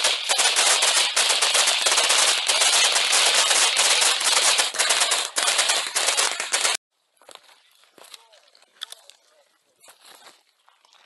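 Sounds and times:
automatic gunfire: 0.0 - 6.8.

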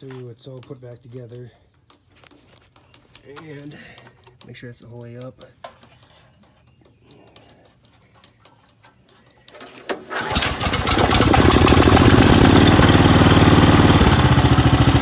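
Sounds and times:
engine recoil cord pull: 9.5 - 15.0
pressure washer engine running: 10.1 - 15.0.

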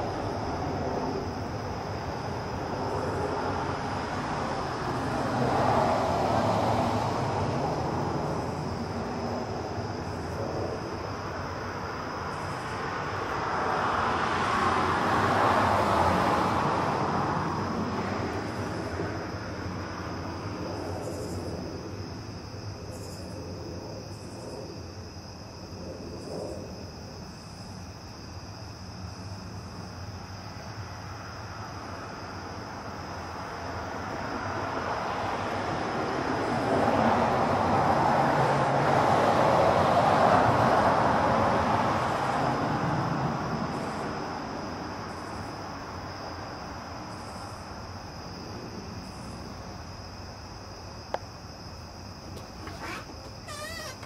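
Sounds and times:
insects trilling: 18.0 - 34.5, 43.5 - 54.0.

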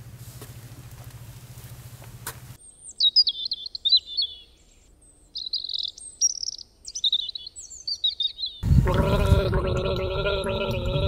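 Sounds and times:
small bird chirping: 2.6 - 8.7.

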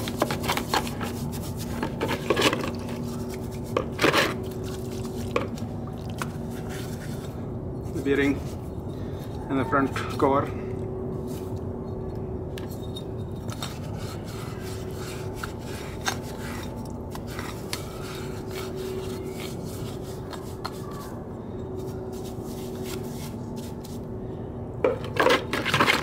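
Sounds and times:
steady low hum: 0.0 - 26.0
paintbrush scrubbing metal: 12.8 - 21.2, 21.8 - 24.0
scraping and clatter: 24.9 - 26.0.

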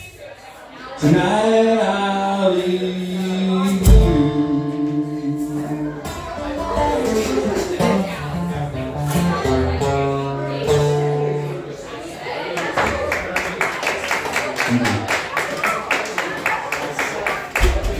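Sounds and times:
man singing long notes: 1.0 - 6.3
acoustic guitar: 1.0 - 12.2.

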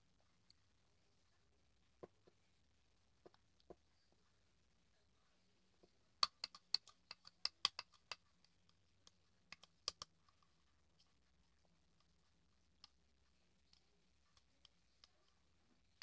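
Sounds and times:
plastic spoon clicks and taps: 6.2 - 10.1.

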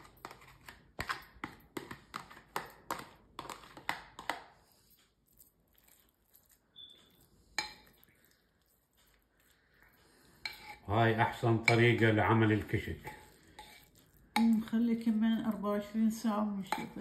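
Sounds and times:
spoon scraping plastic tub: 0.0 - 4.9, 10.3 - 14.7
spoon stirring in bowl: 0.0 - 17.0
spoon clinking ceramic bowl: 11.6 - 12.2.

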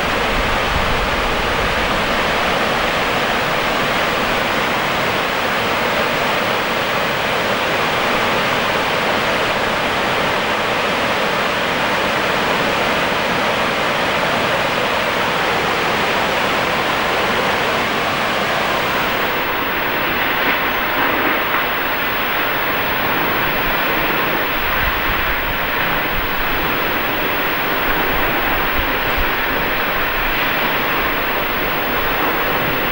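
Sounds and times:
waterfall rushing: 18.5 - 32.9.

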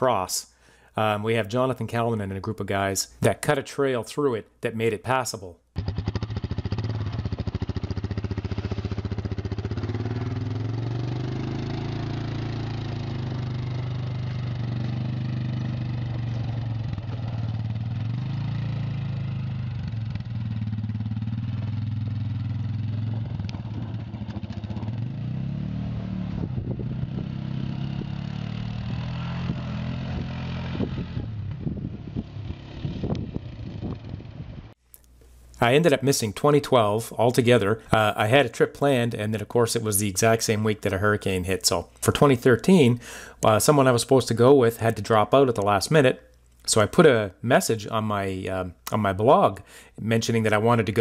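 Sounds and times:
atv engine running: 5.8 - 34.7
knocks and crackles: 16.1 - 17.6, 22.9 - 25.0.

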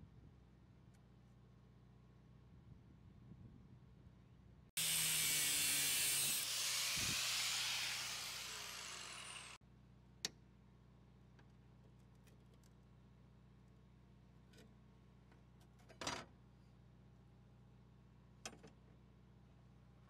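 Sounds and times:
power tool hissing: 4.8 - 9.6.

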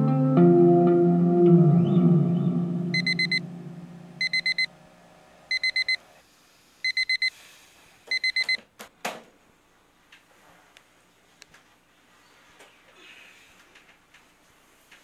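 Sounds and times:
alarm clock beeping: 2.9 - 3.4, 4.2 - 4.7, 5.5 - 6.0, 6.9 - 7.3, 8.1 - 8.6.

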